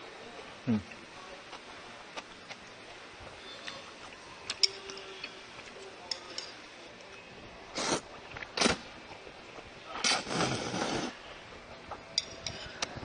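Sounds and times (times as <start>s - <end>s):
chopsticks clicking against bowl: 4.5s - 5.4s, 6.0s - 6.6s.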